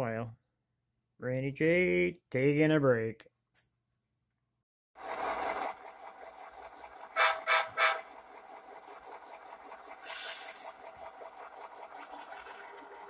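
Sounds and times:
faint locomotive engine sound: 5.0 - 13.0
model train horn toots: 7.1 - 8.1
hiss of air: 10.0 - 10.7.

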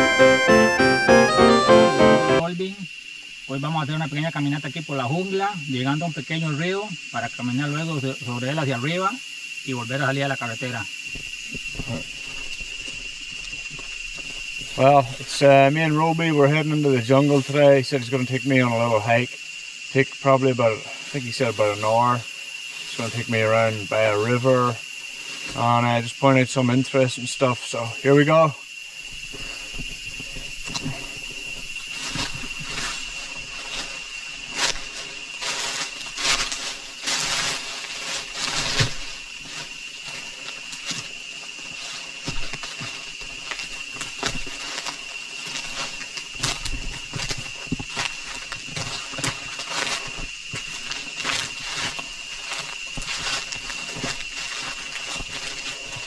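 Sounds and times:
footsteps on a trail: 31.4 - 56.0.

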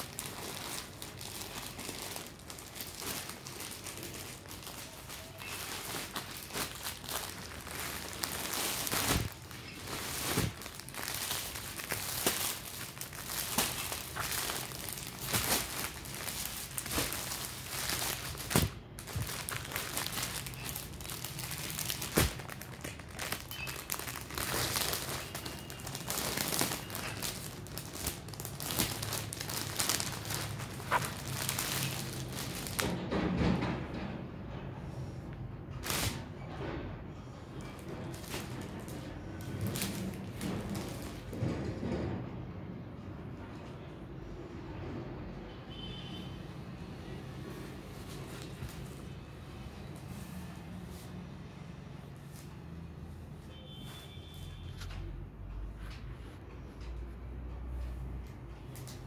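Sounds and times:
plastic packaging crinkling: 0.0 - 32.9, 37.8 - 41.3.

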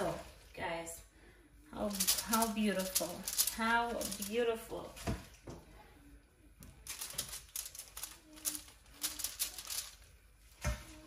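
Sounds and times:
aluminium foil crinkling: 1.8 - 4.9, 6.6 - 10.2
plastic glove rustling: 1.8 - 5.4, 6.6 - 11.0.

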